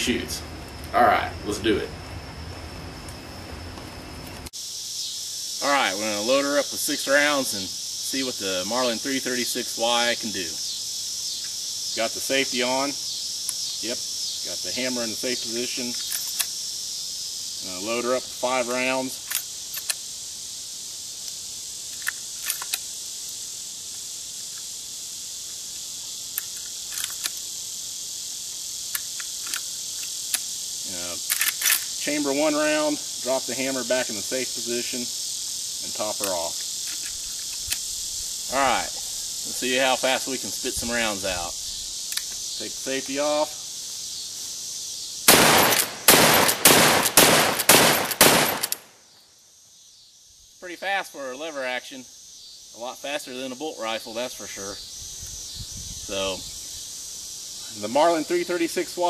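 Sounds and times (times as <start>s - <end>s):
insects droning: 0.0s - 59.0s
cartridges clicking into rifle: 31.3s - 31.9s, 45.3s - 48.9s.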